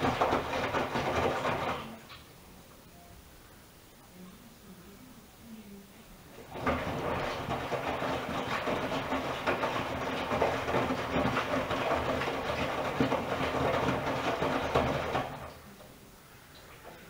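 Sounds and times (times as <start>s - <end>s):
washing machine drum turning: 0.0s - 2.1s, 6.4s - 15.6s
wet laundry tumbling: 0.0s - 2.2s, 6.3s - 15.9s.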